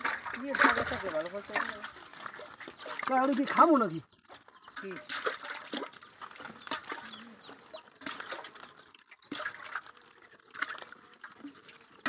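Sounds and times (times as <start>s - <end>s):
fish slapping and splashing: 0.0s - 12.0s
bird chirps: 3.8s - 5.1s, 6.0s - 9.4s.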